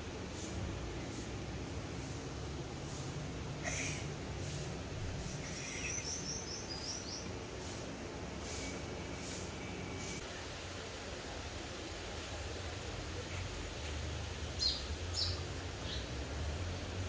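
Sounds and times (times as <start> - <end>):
quick bird chirps: 3.6 - 7.8.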